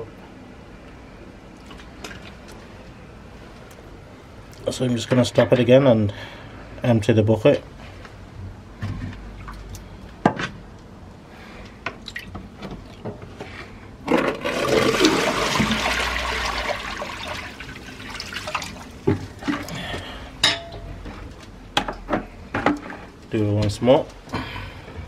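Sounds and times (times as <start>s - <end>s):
water pouring onto concrete: 14.4s - 18.9s.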